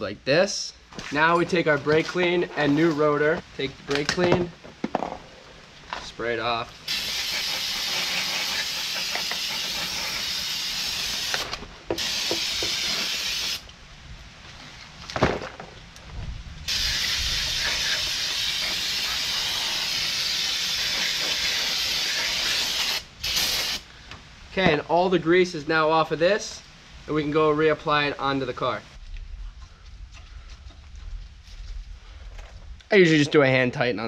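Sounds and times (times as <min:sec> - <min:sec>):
aerosol spray hissing: 0:06.9 - 0:13.6, 0:16.7 - 0:23.8.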